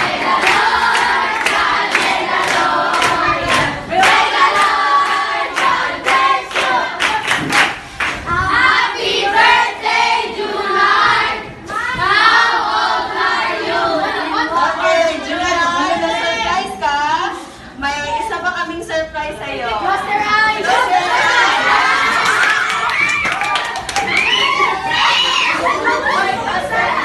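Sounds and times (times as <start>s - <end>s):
rhythmic clapping: 0.0s - 10.1s, 22.1s - 24.6s
group singing: 0.0s - 16.4s.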